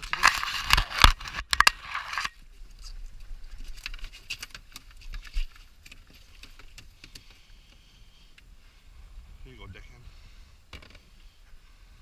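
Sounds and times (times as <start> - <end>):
net frame clicks and rattles: 0.0 - 7.4.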